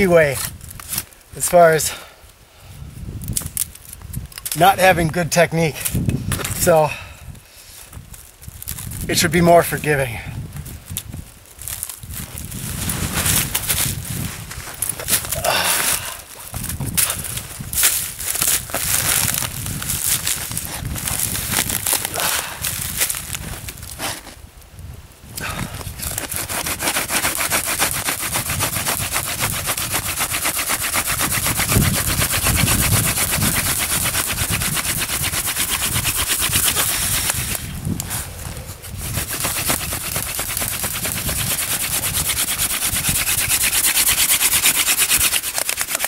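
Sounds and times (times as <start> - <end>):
wooden spindle grinding on board: 25.9 - 46.0.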